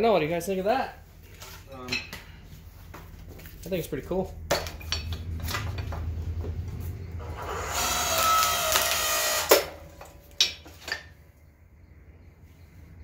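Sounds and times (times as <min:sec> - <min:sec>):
log splitter humming: 0:03.7 - 0:10.4
wood creaking and squealing: 0:04.8 - 0:10.2
wood splitting crack: 0:07.2 - 0:11.1.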